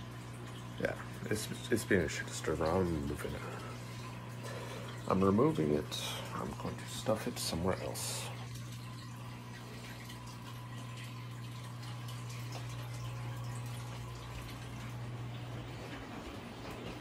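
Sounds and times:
aquarium equipment humming: 0:00.0 - 0:17.0
water trickling and dripping: 0:00.0 - 0:17.0.

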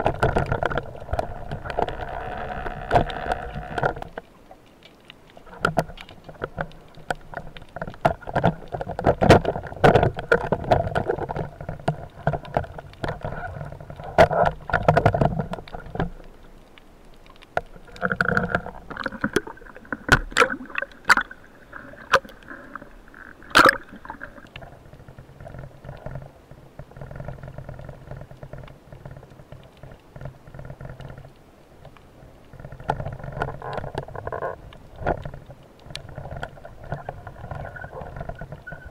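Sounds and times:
gear knocks and clicks: 0:00.0 - 0:21.4
muffled underwater sloshing: 0:00.0 - 0:38.9.

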